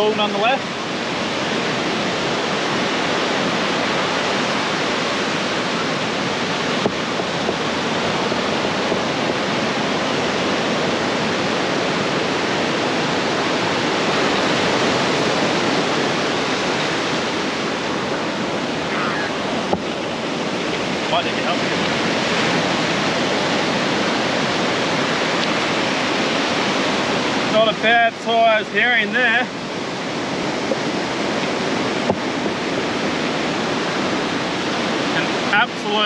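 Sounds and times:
surf waves on sandy beach: 0:00.0 - 0:36.0.

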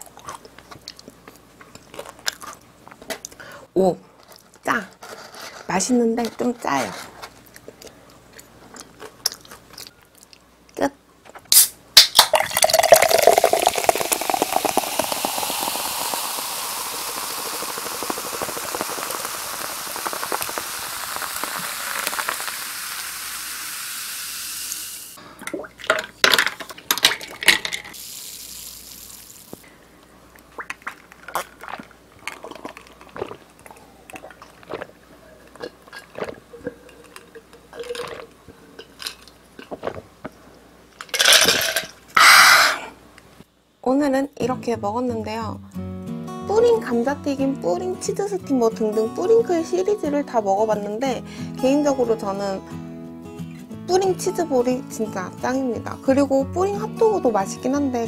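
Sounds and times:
can cracked open: 0:11.5 - 0:23.2
ice cubes clinking in glass: 0:12.2 - 0:19.4, 0:41.0 - 0:42.0
soda fizzing in a glass: 0:12.2 - 0:25.2, 0:27.9 - 0:29.6
person drinking: 0:12.3 - 0:23.7, 0:30.4 - 0:40.4, 0:41.6 - 0:43.0.

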